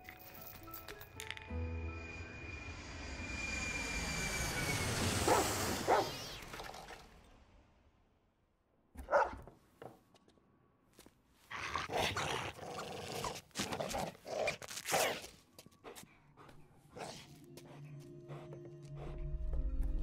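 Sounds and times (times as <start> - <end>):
dog barking: 5.3 - 6.1, 9.0 - 9.5.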